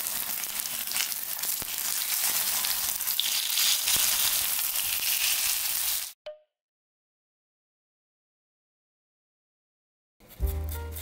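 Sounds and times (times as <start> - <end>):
pancakes sizzling in oil: 0.0 - 6.2.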